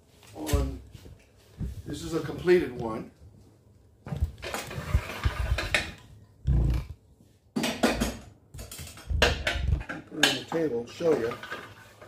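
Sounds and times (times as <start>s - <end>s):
metal and wood clatter: 7.6s - 12.0s.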